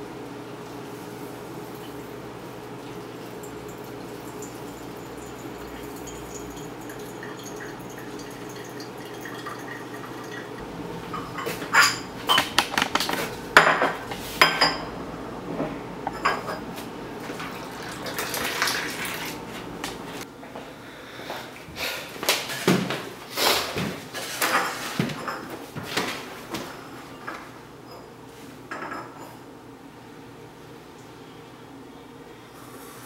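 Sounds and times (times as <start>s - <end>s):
water trickling into coffee filter: 2.7s - 10.6s, 17.3s - 19.2s
porcelain cups clinking: 3.3s - 15.0s, 16.1s - 16.7s.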